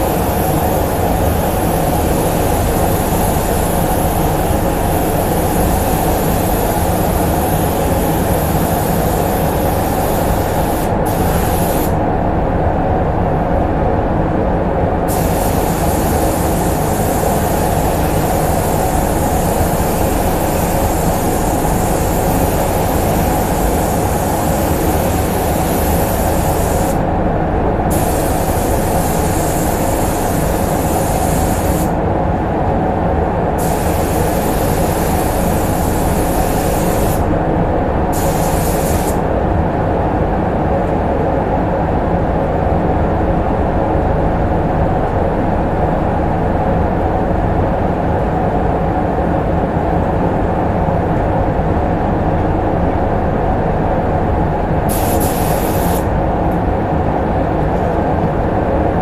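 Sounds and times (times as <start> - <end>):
paint spray gun hissing: 0.0 - 12.0, 15.1 - 27.0, 27.9 - 32.0, 33.6 - 37.3, 38.1 - 39.2, 54.9 - 56.1
ventilation fans humming: 0.0 - 59.0.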